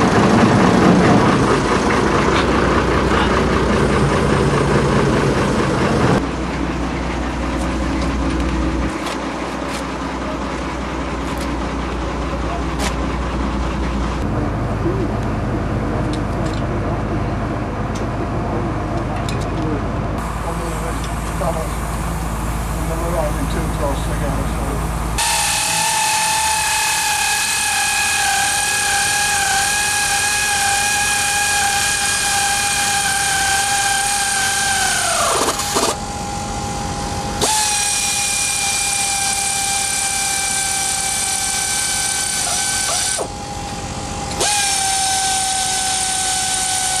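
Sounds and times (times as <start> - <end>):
power tool whining: 20.2 - 47.0.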